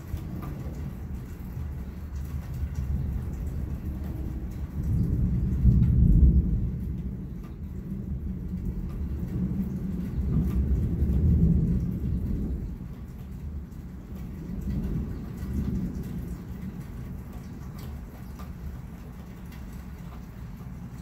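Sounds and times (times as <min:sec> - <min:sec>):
rolling thunder: 0:00.0 - 0:21.0.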